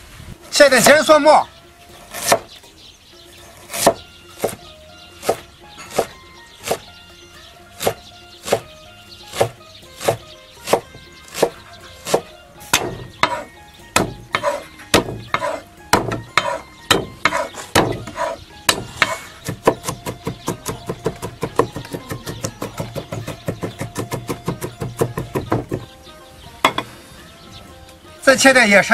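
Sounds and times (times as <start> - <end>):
faint background music: 0.0 - 28.9
cleaver chopping on wooden board: 2.0 - 2.6, 3.6 - 6.9, 7.7 - 25.9.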